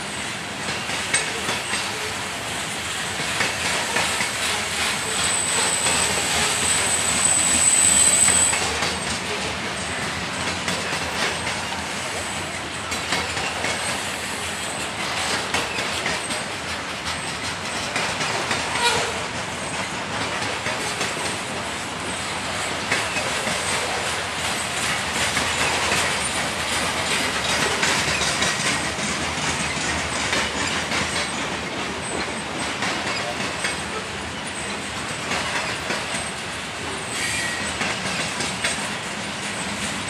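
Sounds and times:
steel wheels rolling on rail: 0:00.0 - 0:40.0
wheels clicking over rail joints: 0:00.6 - 0:02.1, 0:08.5 - 0:40.0.

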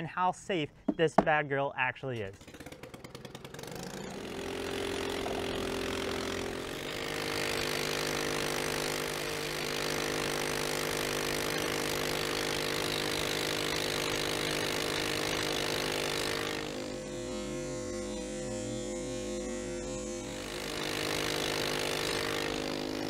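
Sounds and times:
go-kart engine running fast: 0:02.4 - 0:17.0, 0:20.3 - 0:23.0.

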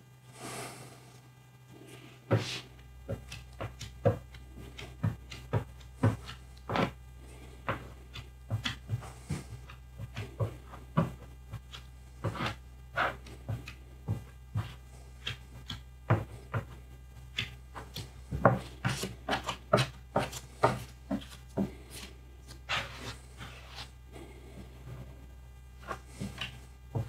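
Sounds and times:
putty spreader scraping tabletop: 0:02.3 - 0:02.6, 0:11.7 - 0:13.6, 0:22.7 - 0:23.9.

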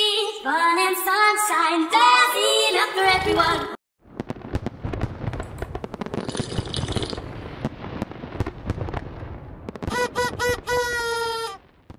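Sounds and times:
firework-like pops: 0:04.1 - 0:10.0
party horn tooting: 0:09.9 - 0:11.6.

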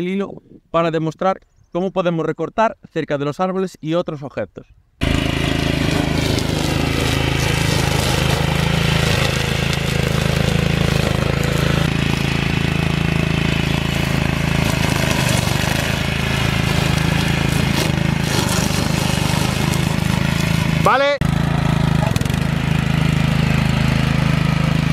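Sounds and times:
brush cutter engine running: 0:05.0 - 0:24.9.

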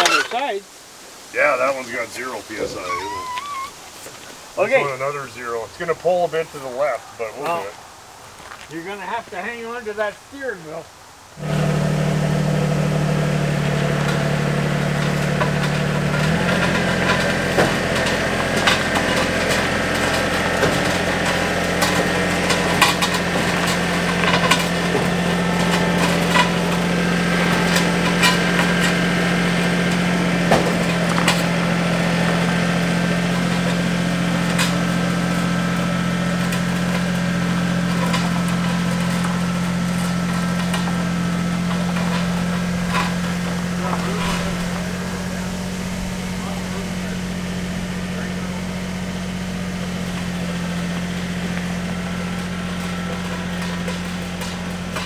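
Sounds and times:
car engine running: 0:11.3 - 0:55.0.

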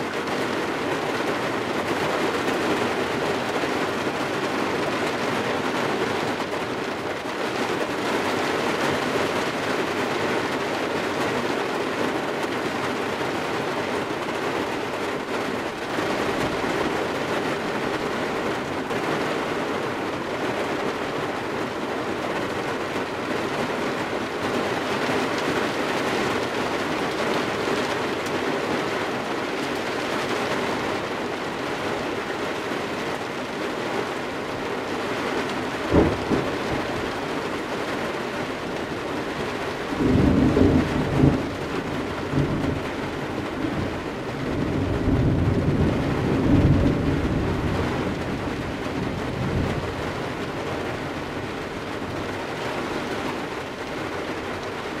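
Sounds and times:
rain on car body and windows: 0:00.0 - 0:55.0
thunder crack: 0:35.9 - 0:37.2.

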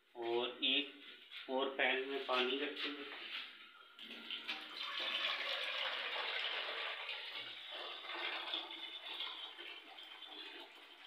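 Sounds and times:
tap water running into a pan: 0:04.0 - 0:11.0.

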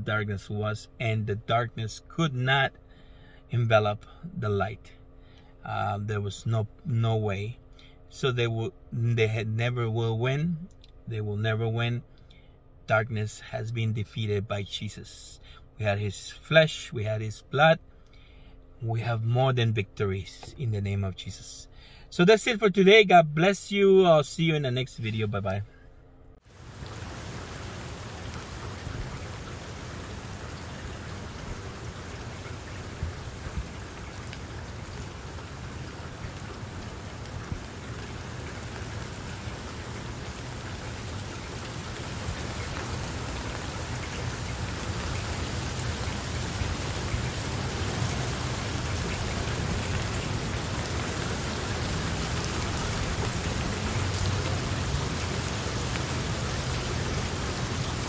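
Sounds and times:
steady rain falling: 0:26.4 - 0:58.0.

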